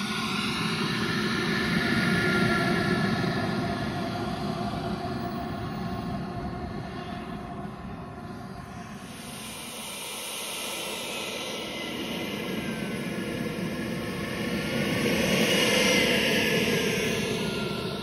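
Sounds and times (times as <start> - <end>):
model jet turbine whine: 0.0 - 18.0.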